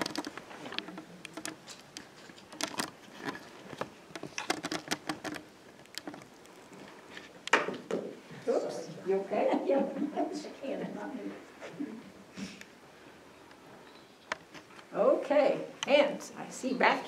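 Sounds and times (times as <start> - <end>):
microphone handling clicks and rustles: 0.0 - 8.0.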